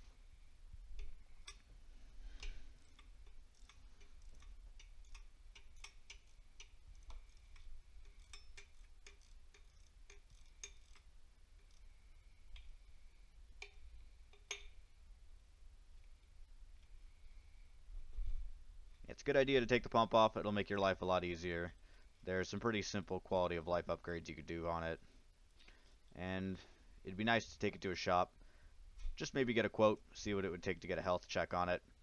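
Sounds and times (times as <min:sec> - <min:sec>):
metallic clicks of hand tools: 0:01.0 - 0:01.7, 0:02.4 - 0:11.9, 0:13.6 - 0:14.8.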